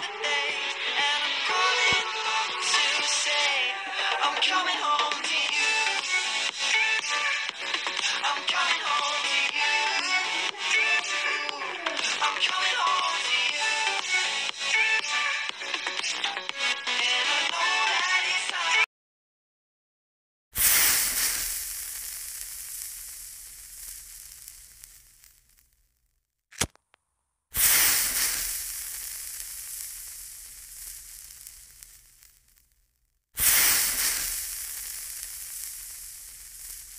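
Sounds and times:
flames hissing and crackling: 0:20.6 - 0:26.0, 0:27.5 - 0:36.9
short sharp click: 0:26.5 - 0:26.8.

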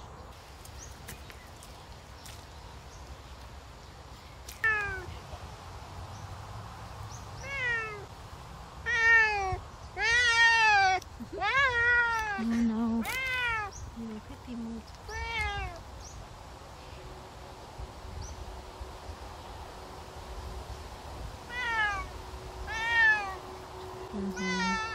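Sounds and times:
cat meowing loudly: 0:04.6 - 0:05.1, 0:07.4 - 0:08.1, 0:08.8 - 0:12.4, 0:13.0 - 0:13.7, 0:15.1 - 0:15.8, 0:21.5 - 0:22.1, 0:22.7 - 0:23.4, 0:24.4 - 0:24.9.

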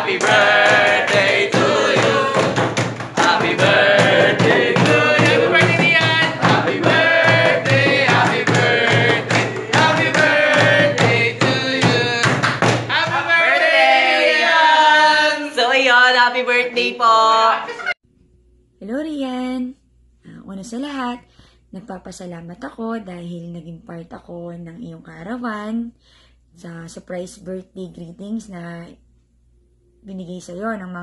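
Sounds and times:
singing over fast beat: 0:00.0 - 0:13.6.

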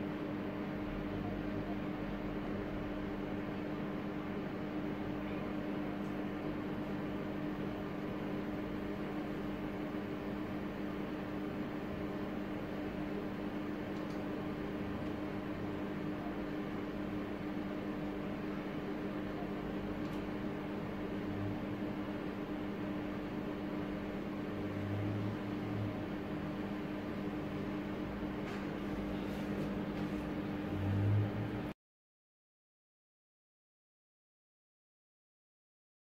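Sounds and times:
steady hum and hiss: 0:00.0 - 0:31.7.

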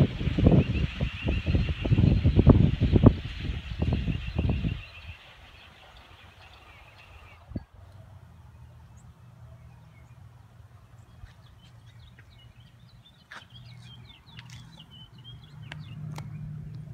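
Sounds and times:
birds chirping: 0:00.0 - 0:16.9
steady low rumble: 0:06.6 - 0:16.9.

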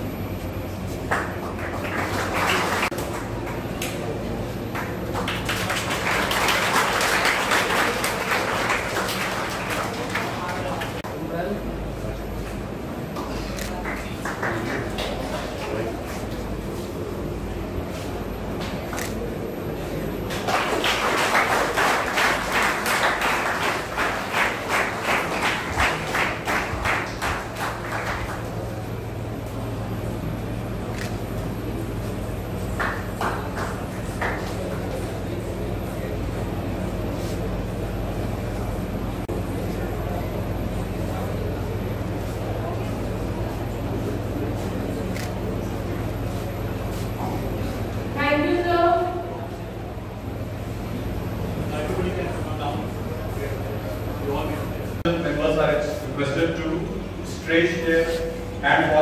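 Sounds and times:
audience applause: 0:00.9 - 0:11.0, 0:13.8 - 0:15.8, 0:20.2 - 0:29.3, 0:31.7 - 0:36.3.

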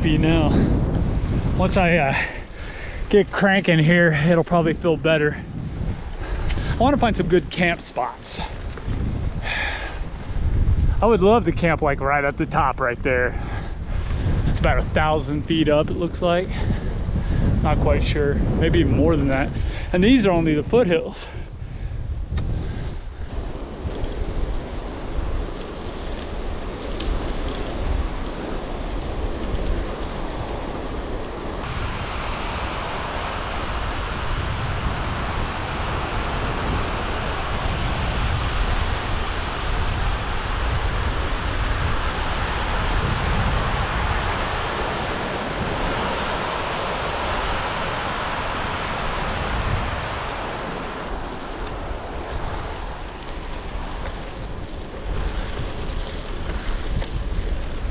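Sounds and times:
wind buffeting microphone: 0:00.0 - 0:57.9
river rushing over rapids: 0:31.6 - 0:56.0.

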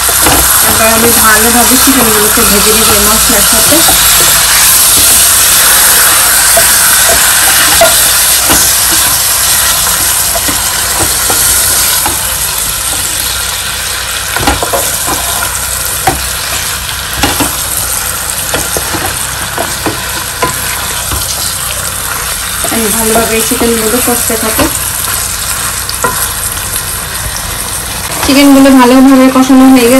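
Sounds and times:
wooden spatula knocking pan: 0:00.0 - 0:12.3, 0:14.3 - 0:15.4, 0:16.0 - 0:16.3, 0:17.2 - 0:17.6, 0:18.5 - 0:21.4
chicken sizzling in oil: 0:00.0 - 0:29.9.

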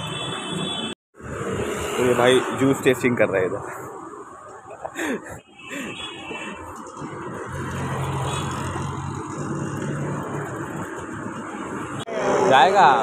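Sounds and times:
street traffic noise: 0:00.0 - 0:13.0
vehicle engine humming close by: 0:06.7 - 0:12.0.

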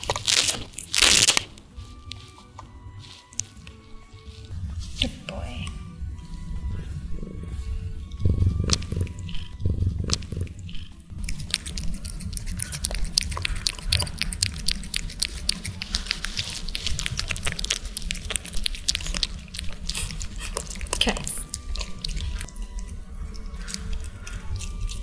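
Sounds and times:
cat rubbing against microphone: 0:01.6 - 0:22.5
cat licking wet clicks: 0:06.3 - 0:25.0.

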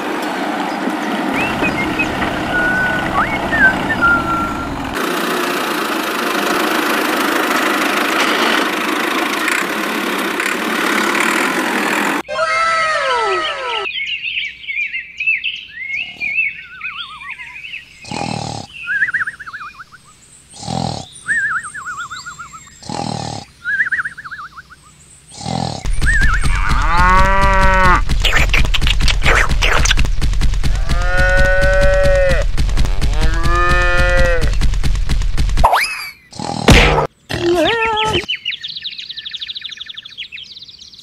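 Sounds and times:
loud buzzing rattle: 0:01.4 - 0:12.2, 0:25.9 - 0:35.7
cattle mooing: 0:25.4 - 0:28.0, 0:30.7 - 0:32.4, 0:33.0 - 0:34.6
high bird-like chirps: 0:25.9 - 0:26.6.

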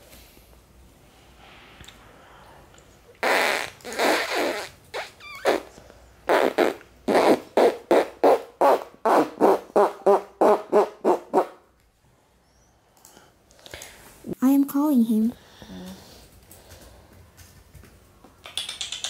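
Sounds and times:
fake fart noises: 0:03.2 - 0:11.6.

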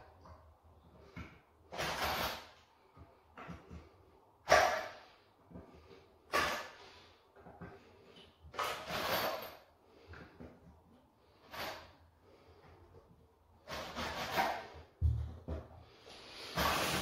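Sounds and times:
faint knocks and rustles: 0:02.8 - 0:04.2, 0:12.4 - 0:16.0
person blowing air puffs: 0:16.0 - 0:17.0.

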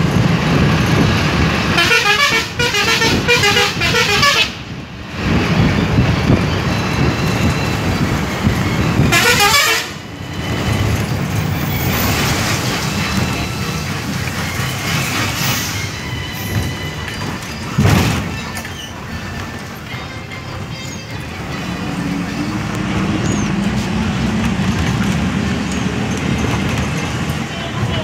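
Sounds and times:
train rumbling: 0:00.0 - 0:28.0
train horn blasts: 0:01.7 - 0:04.6, 0:09.0 - 0:10.1
wagon passing close: 0:04.1 - 0:28.0.

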